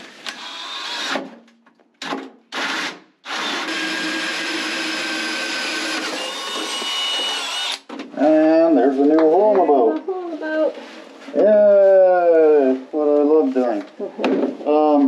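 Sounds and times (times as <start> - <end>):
power drill cutting with hole saw: 0.0 - 1.3, 2.0 - 7.9.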